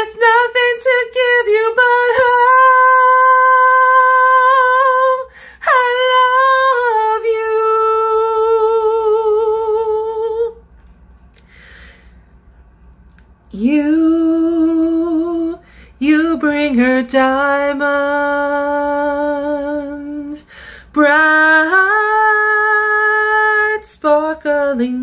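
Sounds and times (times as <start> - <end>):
woman singing unaccompanied: 0.0 - 10.6, 13.5 - 25.0
quick breath: 5.3 - 5.6, 11.4 - 12.4, 15.6 - 16.0, 20.4 - 20.9.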